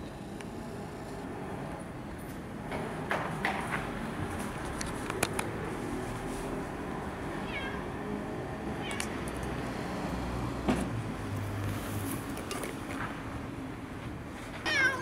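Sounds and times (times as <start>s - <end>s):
outdoor background noise: 0.0s - 15.0s
cat meowing: 7.4s - 8.0s, 8.8s - 9.2s, 14.6s - 15.0s.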